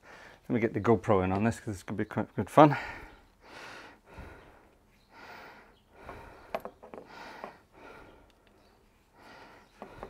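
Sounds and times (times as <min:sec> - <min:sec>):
man breathing: 0:00.0 - 0:00.5, 0:02.7 - 0:10.0.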